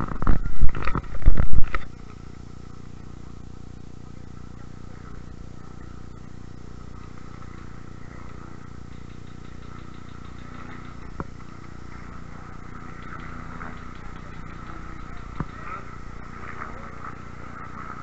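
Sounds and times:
camera rumble and rustling: 0.0 - 18.0
sharp click: 8.9 - 11.3.

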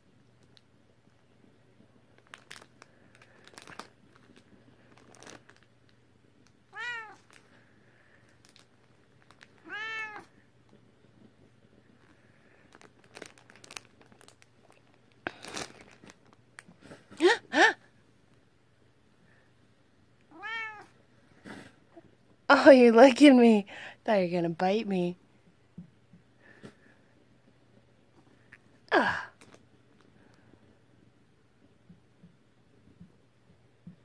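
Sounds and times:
cat meowing: 6.7 - 7.3, 9.6 - 10.3, 20.3 - 21.0.

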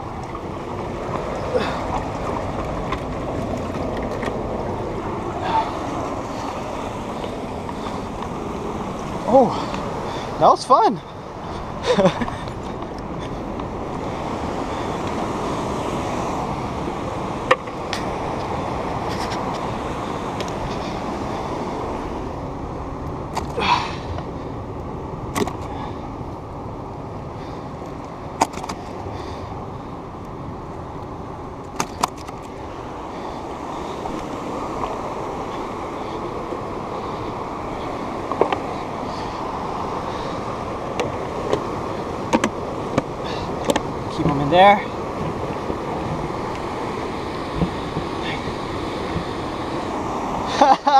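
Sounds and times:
muffled ocean surf rushing: 0.0 - 50.9.

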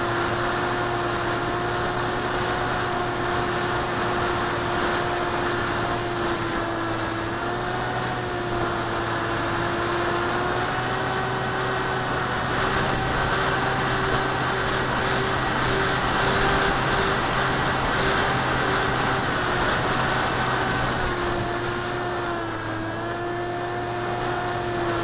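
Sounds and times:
model plane motor and propeller: 0.0 - 25.0.

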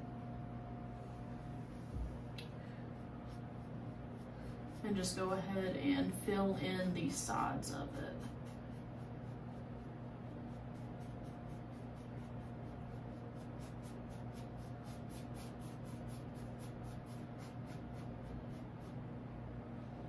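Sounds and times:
low steady hum: 0.0 - 20.0
paintbrush strokes on canvas: 1.4 - 5.7, 7.0 - 19.2.

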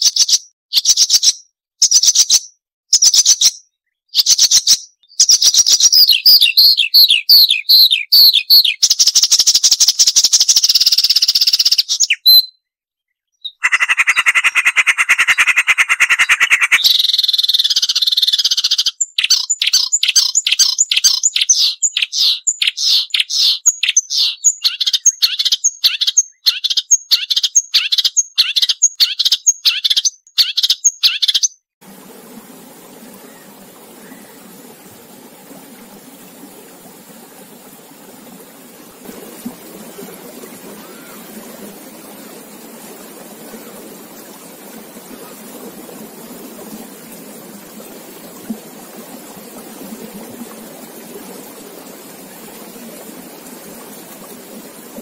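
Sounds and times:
warbler singing: 0.0 - 10.4, 11.1 - 12.6, 15.2 - 31.6, 33.1 - 34.7
faint running water: 31.8 - 55.0.

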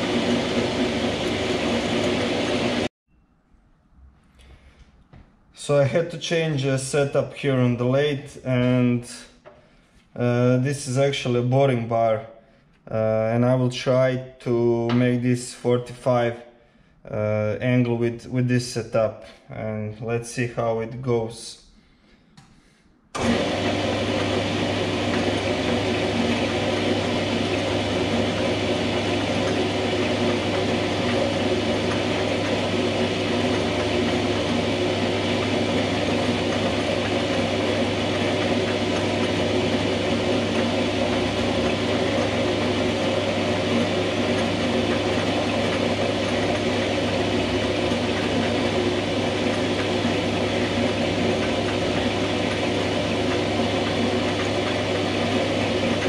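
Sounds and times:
metal lathe running: 0.0 - 2.9, 23.2 - 56.0.

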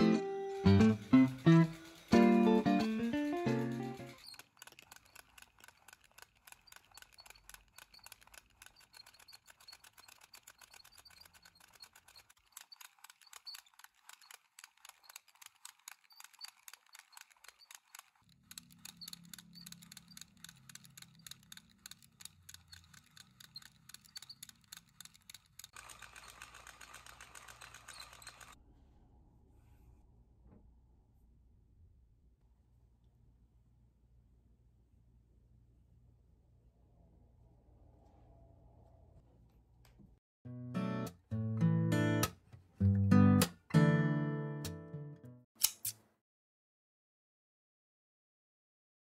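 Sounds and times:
knitting machine clicking: 0.6 - 28.6, 45.6 - 46.0.

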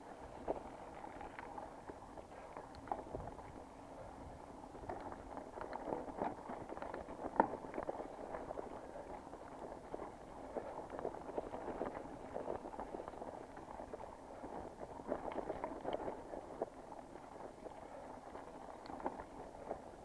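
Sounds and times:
bike clicks and rattles: 0.0 - 20.0
bike tyres crunching on trail: 0.0 - 20.0.

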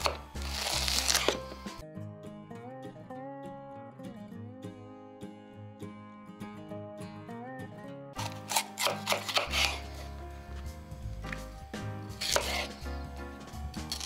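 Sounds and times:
knife slicing on cutting board: 0.0 - 1.6, 8.2 - 10.2, 12.1 - 13.0, 13.8 - 14.0
acoustic guitar music: 1.1 - 8.8.

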